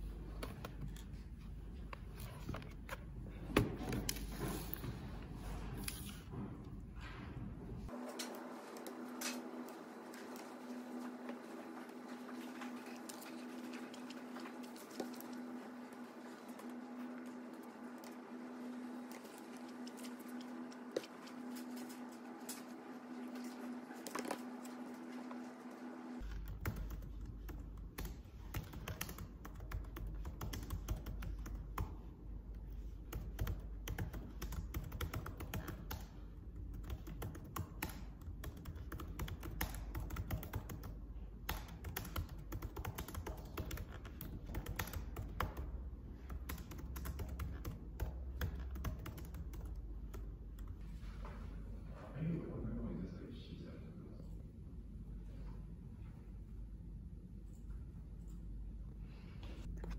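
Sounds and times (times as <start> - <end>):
typing on laptop keyboard: 8.8 - 24.8, 26.2 - 32.1, 32.7 - 50.8.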